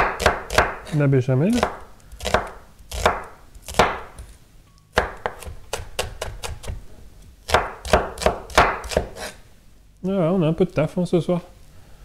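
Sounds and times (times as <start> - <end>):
knife chopping on wooden board: 0.0 - 4.4, 5.0 - 6.8, 7.5 - 9.4.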